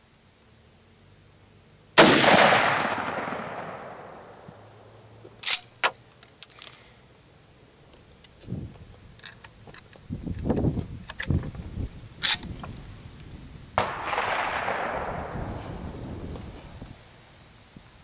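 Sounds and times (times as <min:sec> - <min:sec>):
gunshot echoing: 0:02.0 - 0:04.5, 0:13.8 - 0:15.9
sharp metallic clinks: 0:05.4 - 0:07.0.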